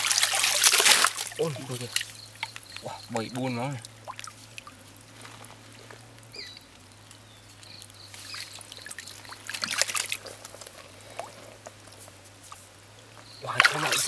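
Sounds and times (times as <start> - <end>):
hands splashing in shallow water: 0.0 - 2.8, 7.8 - 11.4, 13.4 - 14.0.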